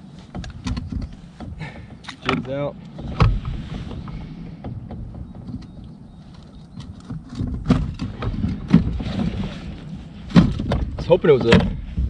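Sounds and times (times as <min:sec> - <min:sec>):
low rumble: 0:02.4 - 0:12.0
knock on kayak: 0:10.3 - 0:12.0.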